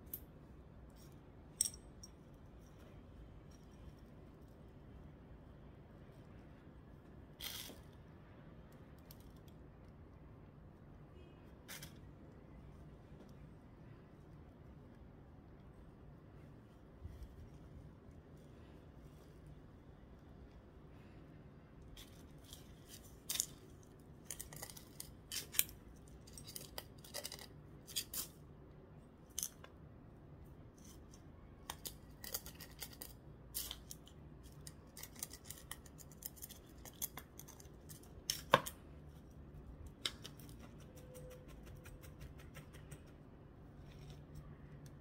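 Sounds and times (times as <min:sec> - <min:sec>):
grit crunching in plastic pot: 0:21.8 - 0:28.3, 0:30.8 - 0:38.8.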